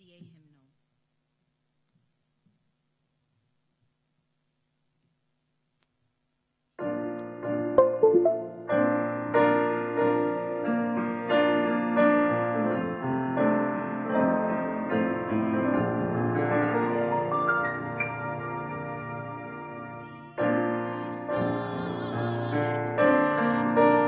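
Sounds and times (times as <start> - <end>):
hymn played on keyboard: 18.4 - 24.0.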